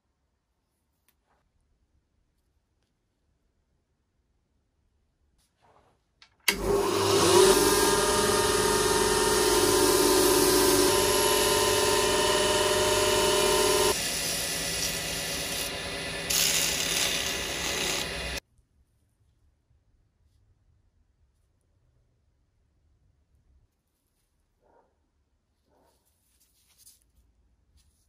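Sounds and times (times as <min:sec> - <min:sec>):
bench grinder wire wheel: 0:06.5 - 0:18.4
quieter motor turning spindle: 0:06.5 - 0:18.4
sandpaper polishing hiss: 0:13.9 - 0:18.4.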